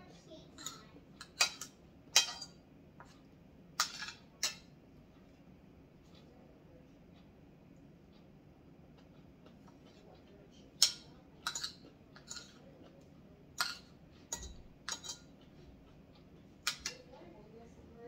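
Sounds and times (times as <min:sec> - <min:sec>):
cutlery clinking on plate: 0:00.6 - 0:02.6, 0:03.8 - 0:04.7, 0:10.8 - 0:12.6, 0:13.6 - 0:15.3, 0:16.7 - 0:17.1.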